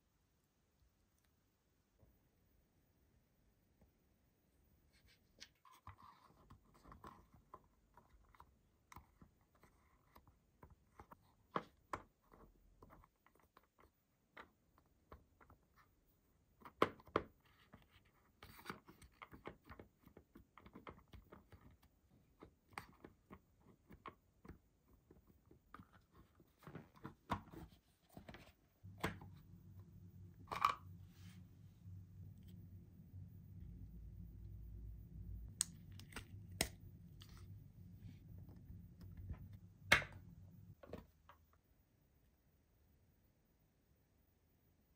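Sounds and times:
low steady hum: 21.2 - 44.9.

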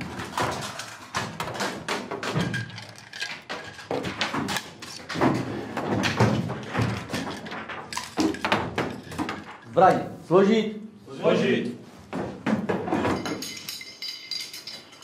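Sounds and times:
metallic clicks and clacks of gun parts: 0.0 - 9.7.

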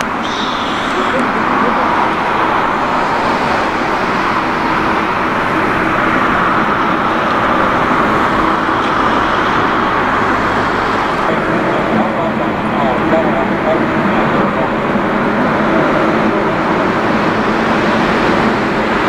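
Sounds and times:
jet engines at taxi power: 0.0 - 19.0.

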